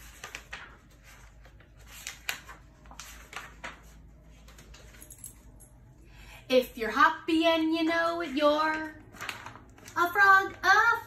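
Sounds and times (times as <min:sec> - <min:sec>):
sharp paper crackles: 0:00.0 - 0:05.0, 0:08.8 - 0:11.0
book pages rustling: 0:00.0 - 0:05.1, 0:08.8 - 0:10.6.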